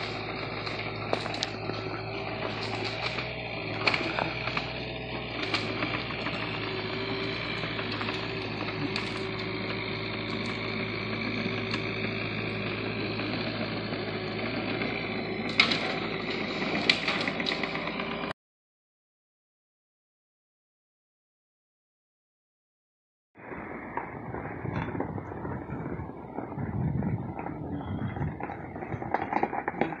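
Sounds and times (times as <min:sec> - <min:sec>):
diesel engine running: 0:00.0 - 0:18.3, 0:23.4 - 0:30.0.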